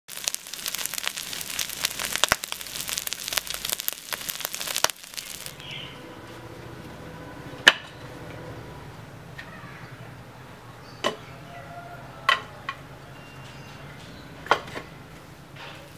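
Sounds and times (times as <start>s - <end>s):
meat sizzling on griddle: 0.1s - 5.6s.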